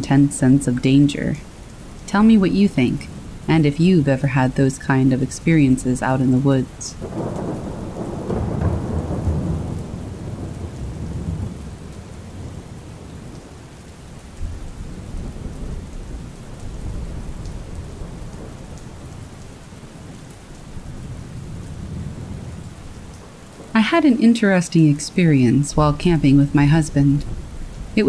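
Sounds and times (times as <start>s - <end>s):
steady rain: 0.0s - 28.0s
rolling thunder: 6.9s - 13.6s, 14.4s - 23.7s.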